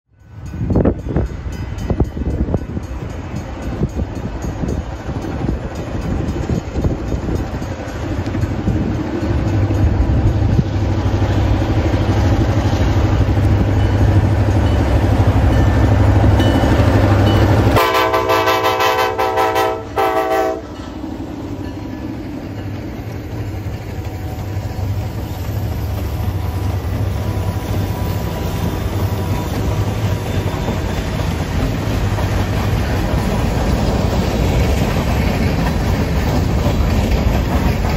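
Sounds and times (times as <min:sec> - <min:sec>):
diesel locomotive engine rumble: 0:00.1 - 0:37.9
freight cars rolling on rails: 0:00.1 - 0:37.9
locomotive air horn: 0:17.7 - 0:20.8.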